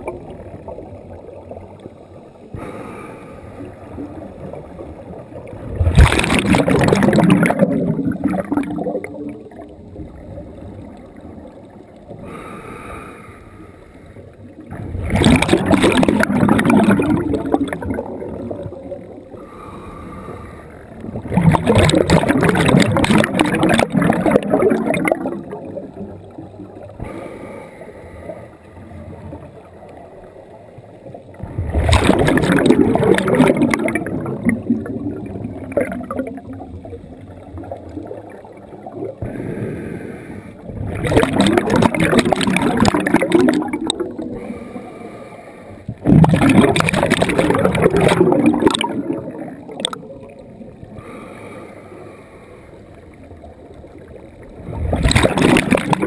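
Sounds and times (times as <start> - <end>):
exhaled bubbles rushing underwater: 0.0 - 12.5, 14.2 - 45.2, 45.8 - 51.4, 52.8 - 56.0
regulator inhale hissing: 2.6 - 3.8, 12.2 - 14.3, 19.4 - 21.0, 27.0 - 28.9, 39.2 - 40.6, 44.4 - 45.9, 51.0 - 52.9.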